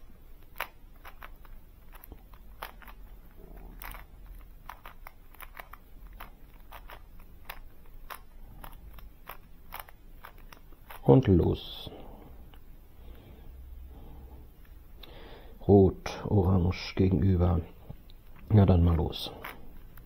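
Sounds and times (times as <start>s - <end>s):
puzzle cube layers clicking: 0.0s - 11.5s.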